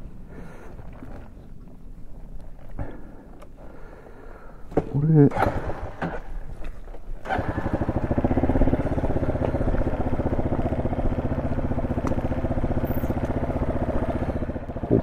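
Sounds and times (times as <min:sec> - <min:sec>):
motorcycle engine running: 0:07.2 - 0:15.0.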